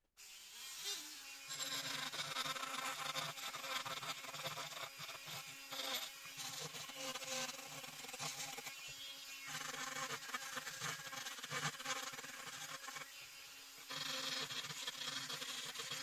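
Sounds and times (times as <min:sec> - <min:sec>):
rotary tool buzzing: 0:00.2 - 0:16.0
bit grinding metal gear: 0:01.5 - 0:08.7, 0:13.9 - 0:16.0.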